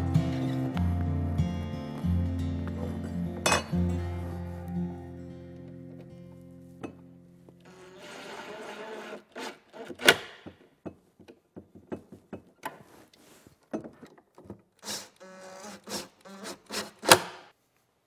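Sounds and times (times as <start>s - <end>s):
cordless drill whining: 7.7s - 10.2s, 14.8s - 17.2s.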